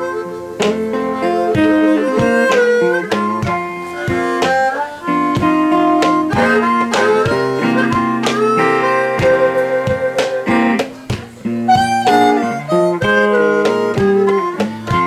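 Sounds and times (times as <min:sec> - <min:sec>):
acoustic guitar strummed and plucked: 0:00.0 - 0:15.0
harmonica bending notes: 0:00.0 - 0:15.0.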